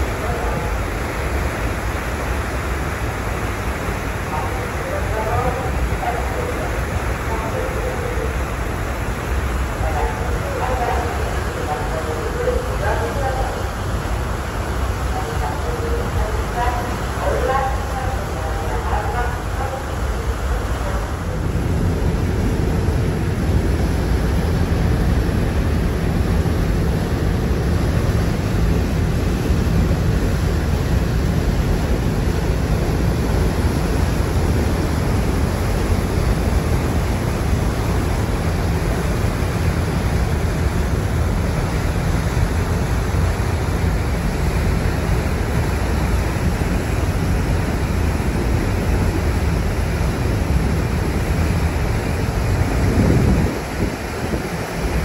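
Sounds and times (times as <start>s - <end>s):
churning wake of a ferry: 0.0s - 55.0s
wind buffeting microphone: 21.3s - 55.0s.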